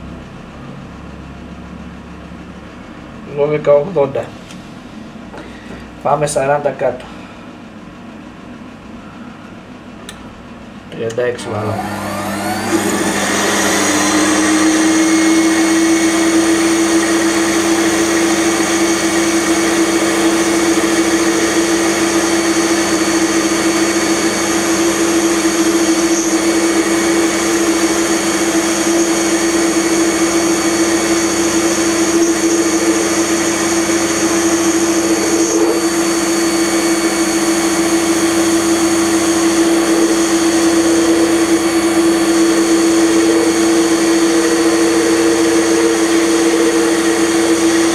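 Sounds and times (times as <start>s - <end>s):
metal lathe cutting: 11.4s - 47.9s.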